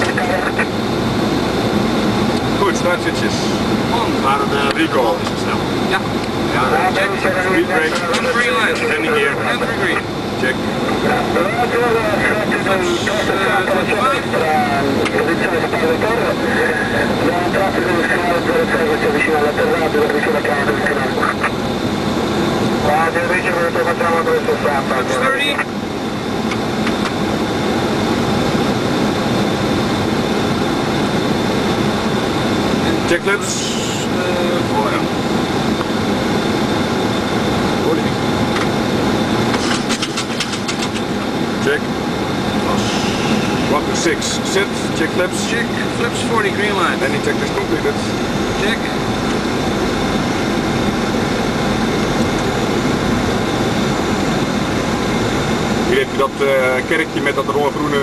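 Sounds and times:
faint steady tones: 0.0s - 39.5s
jet cabin airflow and engine hum: 0.0s - 58.0s.

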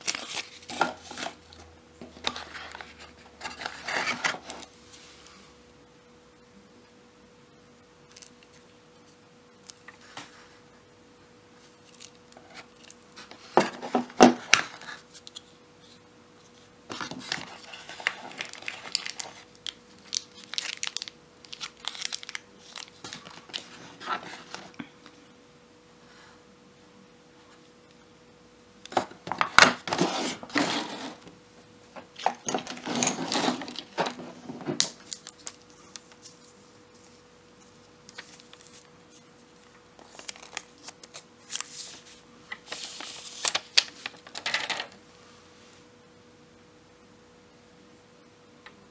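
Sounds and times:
plastic packaging crinkling and tearing: 0.0s - 1.6s, 11.6s - 15.5s, 16.9s - 24.8s, 32.1s - 36.5s, 37.6s - 44.6s
faint steady hum: 0.0s - 48.9s.

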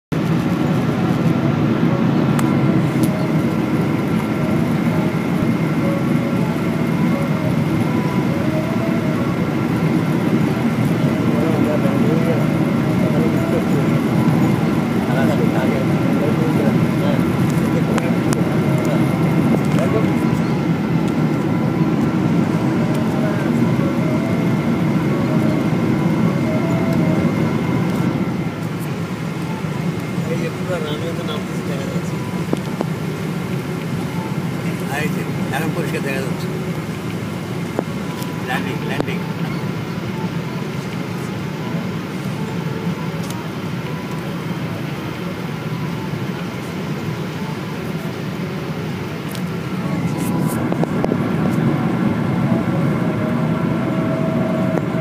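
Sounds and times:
airliner cabin engine and airflow noise: 0.1s - 55.0s
faint steady tones: 0.1s - 55.0s
faint steady whine: 0.1s - 55.0s.

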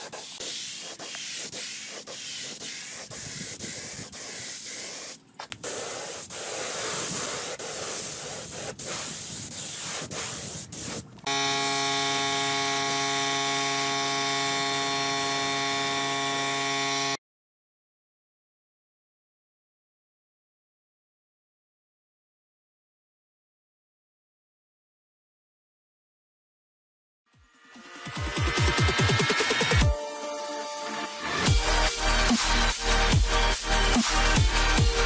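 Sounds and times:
spray gun hissing: 0.0s - 15.4s.

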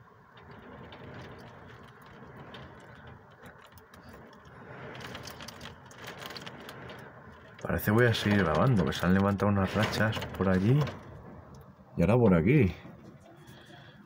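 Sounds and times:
light ticks of rain: 0.0s - 12.2s
gusting wind: 0.0s - 14.0s
rain hissing: 0.3s - 11.9s.

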